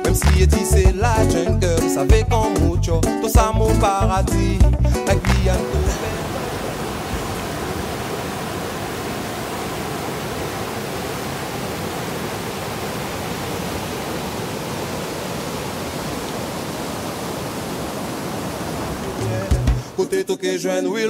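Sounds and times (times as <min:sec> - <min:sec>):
river rapids rushing over rocks: 0:05.6 - 0:20.1.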